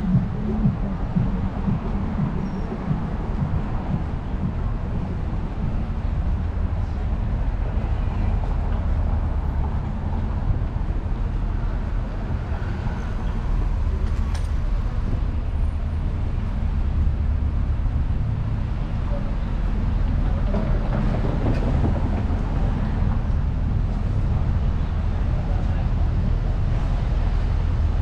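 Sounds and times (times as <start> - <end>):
street traffic rumble: 0.0 - 28.0.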